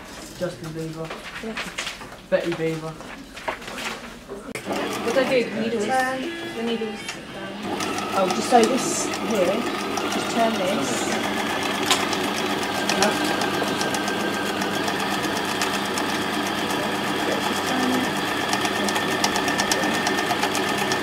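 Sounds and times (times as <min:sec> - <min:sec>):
electric sewing machine running: 0:04.6 - 0:21.0.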